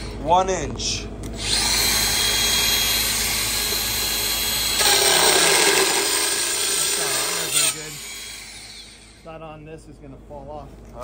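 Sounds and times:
grinding wheel cutting: 1.4 - 9.3.

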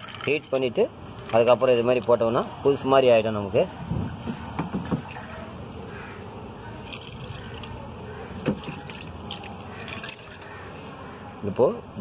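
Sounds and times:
liquid splashing and pouring: 8.4 - 10.5.

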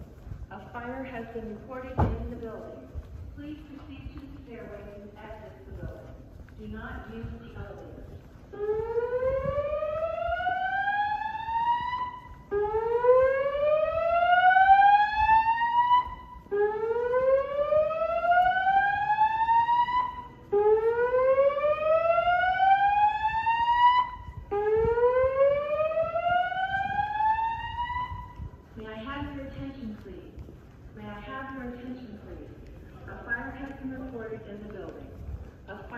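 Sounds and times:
fire alarm whoop tone: 8.6 - 28.5.

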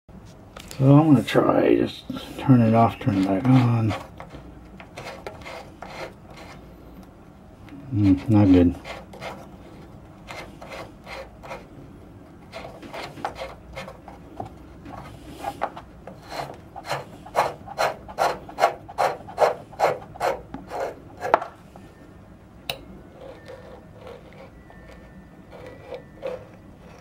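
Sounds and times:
plastic valve scraping: 2.6 - 6.6, 7.9 - 11.7, 12.3 - 21.6, 23.1 - 27.0.

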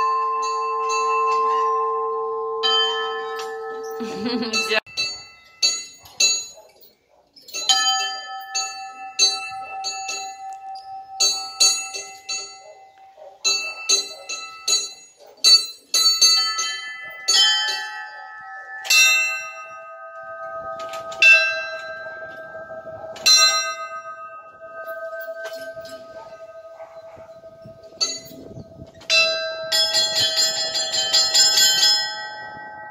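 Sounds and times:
low church bell ringing: 0.0 - 6.1, 7.6 - 15.0, 16.2 - 32.9
small church bells: 0.0 - 6.8, 7.5 - 32.9.

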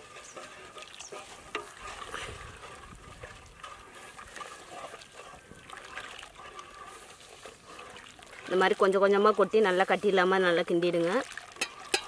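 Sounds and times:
liquid sloshing and trickling: 0.0 - 12.0.

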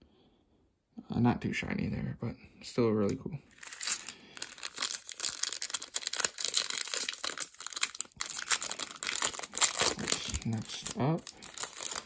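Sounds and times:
foil wrapper crinkling and tearing: 3.5 - 12.0.

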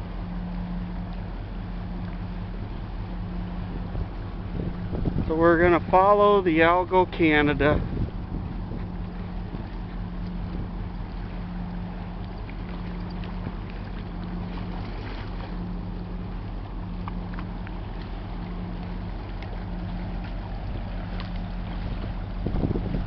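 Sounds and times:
boat engine droning: 0.0 - 23.0
water noise: 0.0 - 23.0
wind: 0.0 - 23.0.

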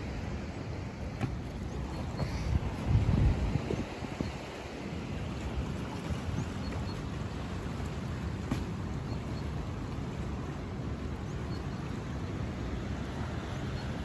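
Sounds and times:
water pouring and churning: 0.9 - 14.0
wind buffeting microphone: 1.1 - 11.4.

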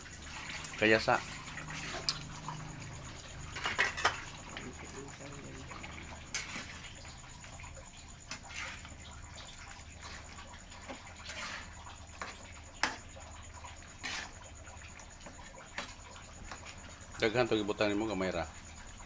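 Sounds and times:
stew sloshing in pan: 0.0 - 17.2.

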